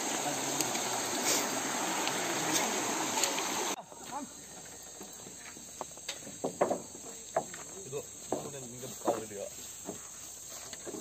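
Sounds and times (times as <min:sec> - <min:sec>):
river rushing over rocks: 0:00.0 - 0:03.8
high-pitched insect chorus: 0:00.0 - 0:11.0.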